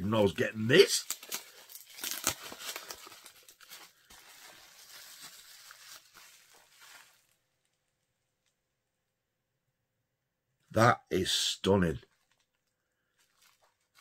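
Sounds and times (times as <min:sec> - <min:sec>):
packaging crinkling and tearing: 0:00.7 - 0:07.5, 0:12.1 - 0:14.0.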